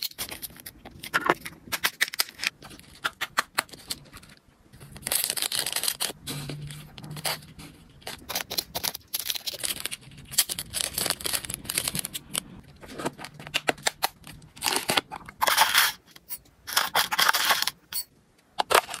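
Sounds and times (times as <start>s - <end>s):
plastic sachet crinkling: 0.0s - 15.8s.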